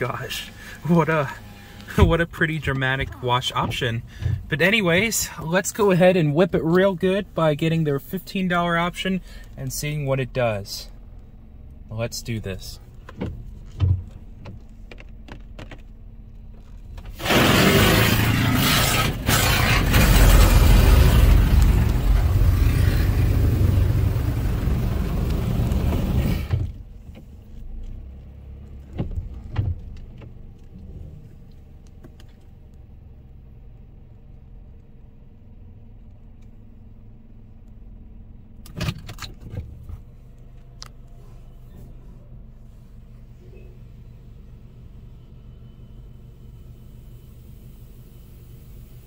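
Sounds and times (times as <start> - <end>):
water jets spraying car: 17.2 - 26.5.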